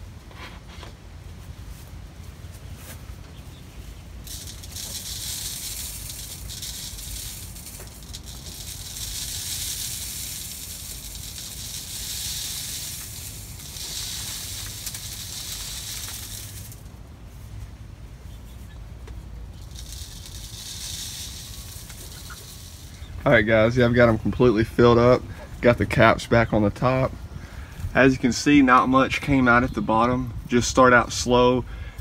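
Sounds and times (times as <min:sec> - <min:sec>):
dry feed pouring into tube: 0:04.2 - 0:16.9, 0:19.6 - 0:24.0.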